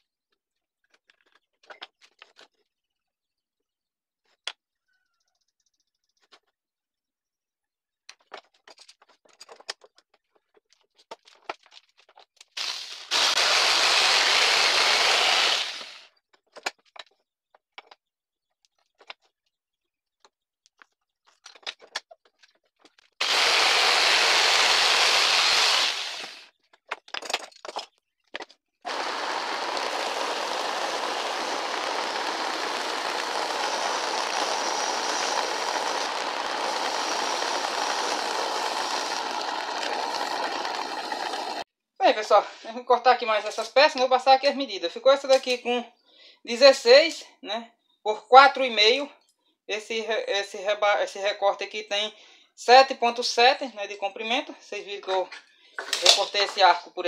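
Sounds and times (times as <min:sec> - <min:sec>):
electric jigsaw cutting wood: 0:12.6 - 0:16.1, 0:23.2 - 0:26.5, 0:28.9 - 0:41.7
belt sander sanding wood: 0:12.9 - 0:16.0, 0:23.2 - 0:26.5, 0:28.9 - 0:41.6.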